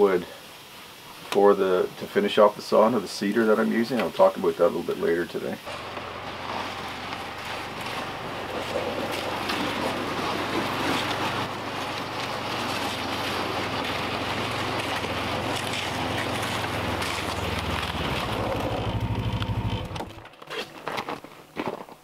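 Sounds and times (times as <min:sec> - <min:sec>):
snowmobile engine running: 0:05.7 - 0:20.2.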